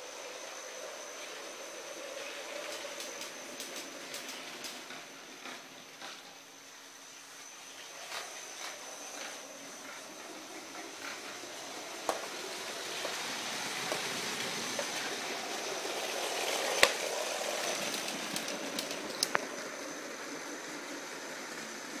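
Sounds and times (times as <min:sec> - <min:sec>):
toy train motor whirring: 0:07.9 - 0:20.9.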